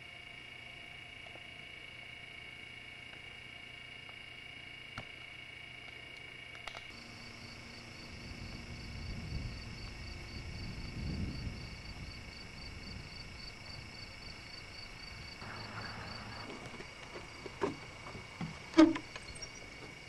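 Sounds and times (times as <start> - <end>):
constant high drone: 0.0 - 20.0
insects chirping: 0.0 - 20.0
low rumble: 7.9 - 18.7.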